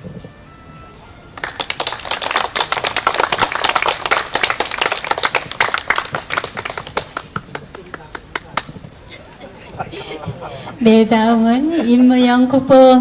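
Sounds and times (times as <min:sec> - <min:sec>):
audience applauding: 0:01.4 - 0:08.7.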